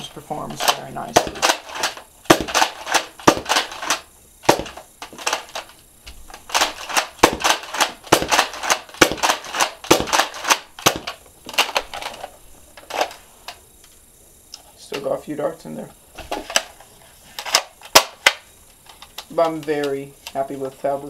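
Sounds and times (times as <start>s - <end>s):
toy blaster clacking shots: 0.6s - 12.2s, 17.4s - 18.4s.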